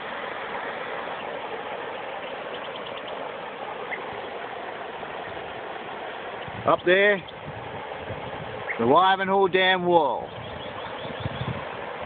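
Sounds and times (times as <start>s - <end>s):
river water rushing over rocks: 0.0s - 12.0s.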